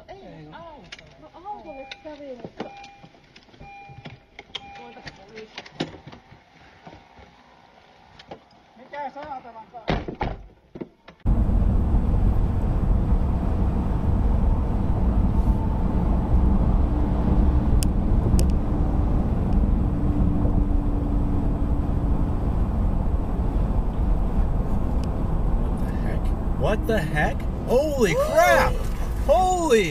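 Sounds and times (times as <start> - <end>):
road and engine rumble: 11.1 - 29.9.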